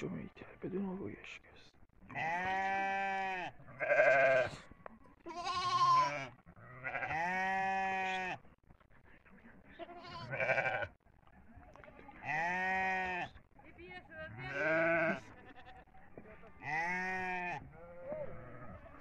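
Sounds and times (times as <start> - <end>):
lambs and goat kids bleating: 2.1 - 8.4, 9.7 - 11.0, 11.8 - 13.4, 14.3 - 15.9, 16.6 - 19.0.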